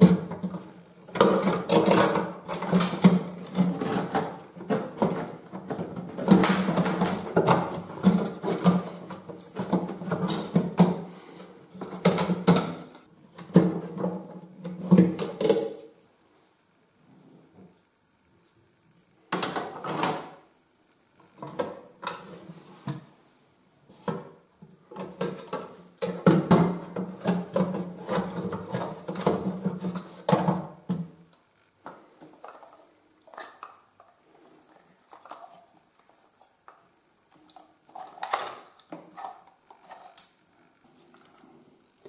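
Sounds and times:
plastic knocks and clatters: 0:24.0 - 0:31.2
plastic scraping on plastic: 0:37.4 - 0:40.3.

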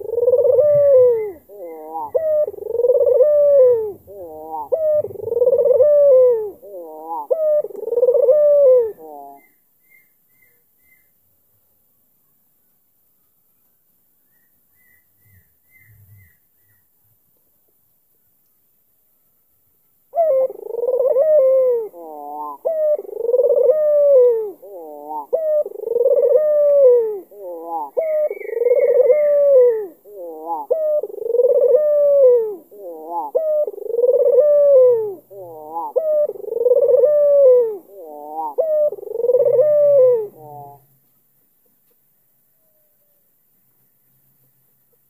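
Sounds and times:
dove cooing: 0:00.0 - 0:09.4, 0:20.1 - 0:40.9.

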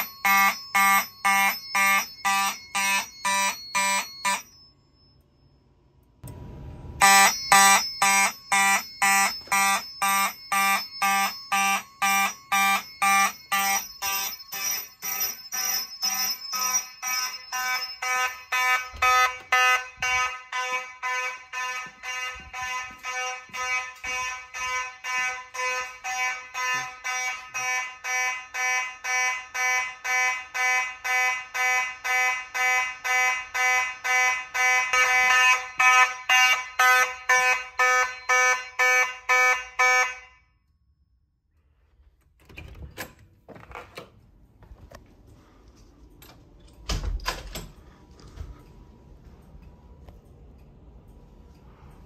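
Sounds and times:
fire alarm horns pulsing: 0:00.0 - 0:04.6, 0:07.0 - 0:40.8
knocks and handling noises: 0:42.2 - 0:48.6.

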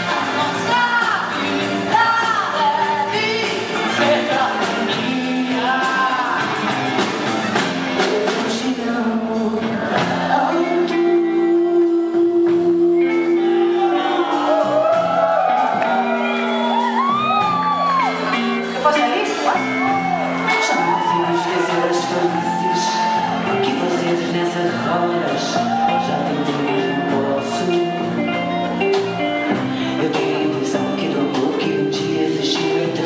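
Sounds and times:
woman singing: 0:00.0 - 0:06.6, 0:08.0 - 0:14.8, 0:20.4 - 0:28.2, 0:29.0 - 0:33.0
live band music: 0:00.0 - 0:33.0.

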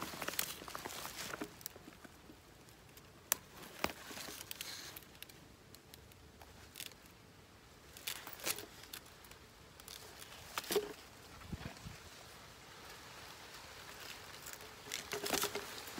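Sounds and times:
soft rustling: 0:00.0 - 0:07.2.

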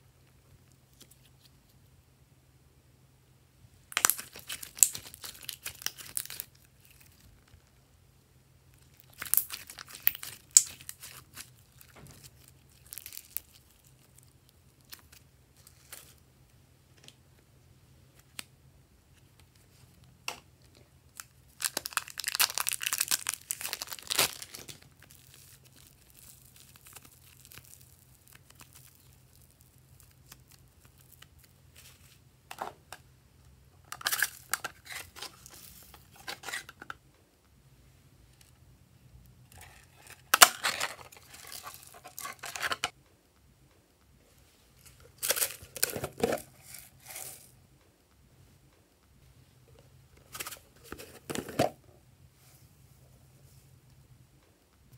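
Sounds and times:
plastic bags crinkling and crackling: 0:08.8 - 0:16.2, 0:21.2 - 0:32.1, 0:39.5 - 0:42.9, 0:44.8 - 0:47.4.

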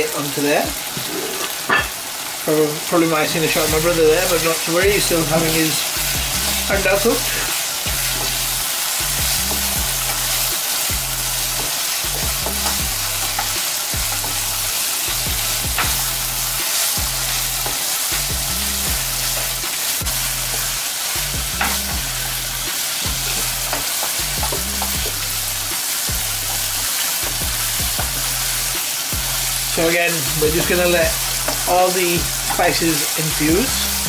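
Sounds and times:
chicken sizzling in oil: 0:00.0 - 0:34.0
wooden spoon scraping wok: 0:00.8 - 0:02.0, 0:29.4 - 0:33.9.

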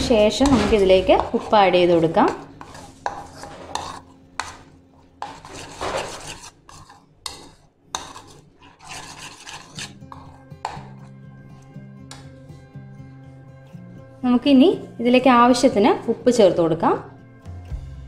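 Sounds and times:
spoon scraping and clinking in bowl: 0:02.3 - 0:12.2.

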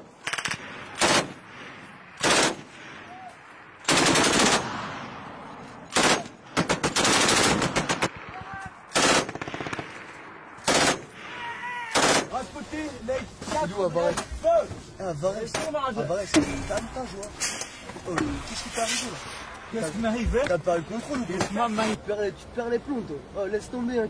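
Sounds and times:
machine gun firing bursts: 0:00.2 - 0:01.4, 0:02.2 - 0:02.7, 0:03.8 - 0:04.7, 0:05.9 - 0:08.2, 0:08.9 - 0:10.0, 0:10.6 - 0:11.1, 0:12.0 - 0:12.3.

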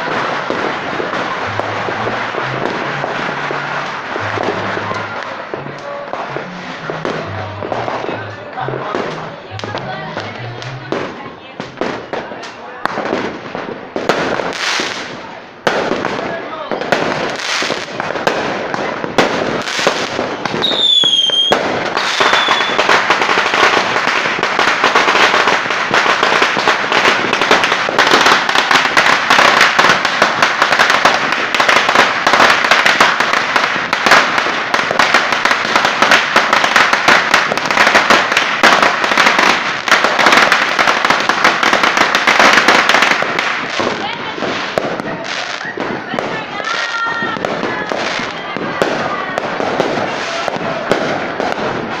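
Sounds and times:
fireworks crackling: 0:00.0 - 0:52.0
firework whistle: 0:00.4 - 0:08.1, 0:20.0 - 0:23.0.

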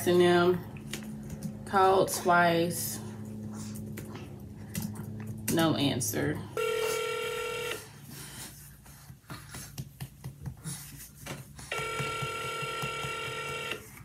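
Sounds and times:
telephone ringback tone: 0:06.6 - 0:07.8, 0:11.7 - 0:13.8.

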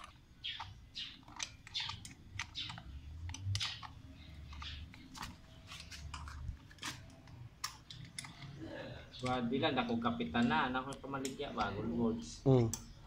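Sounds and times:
hex key clicking on metal: 0:00.0 - 0:05.3, 0:06.0 - 0:08.6.

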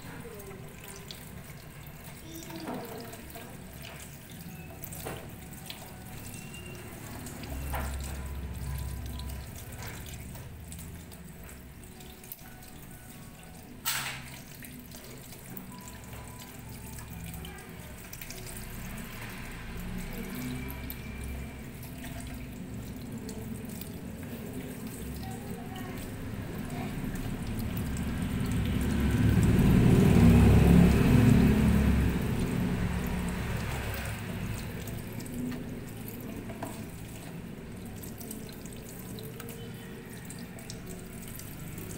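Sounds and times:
tap water running into colander: 0:00.0 - 0:41.9.

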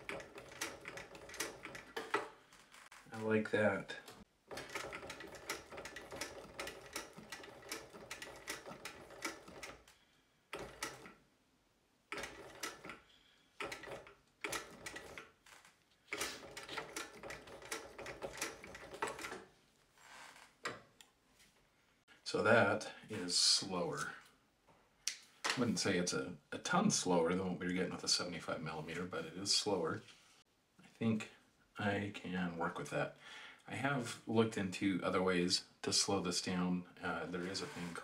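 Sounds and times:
sewing machine clatter: 0:00.0 - 0:02.3, 0:04.5 - 0:09.9, 0:10.5 - 0:11.2, 0:12.1 - 0:13.0, 0:13.6 - 0:15.4, 0:16.1 - 0:19.5.

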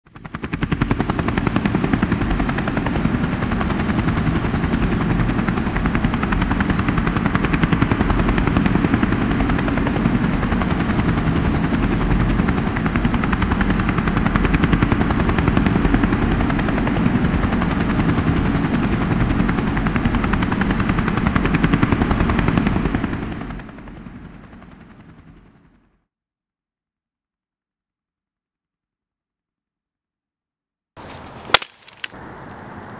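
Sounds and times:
helicopter rotor chop: 0:00.1 - 0:25.9.

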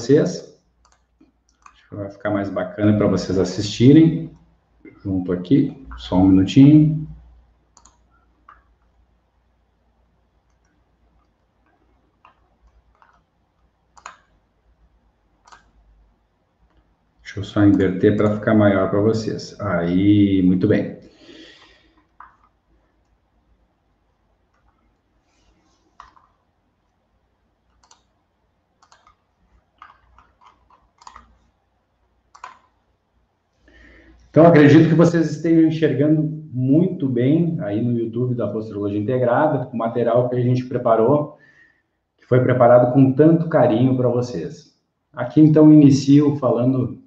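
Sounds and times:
faint computer clicks: 0:00.4 - 0:01.9, 0:07.7 - 0:09.1, 0:10.4 - 0:14.4, 0:15.4 - 0:15.8, 0:21.5 - 0:23.2, 0:25.7 - 0:27.0, 0:27.6 - 0:28.2, 0:28.8 - 0:31.5, 0:32.3 - 0:32.8.

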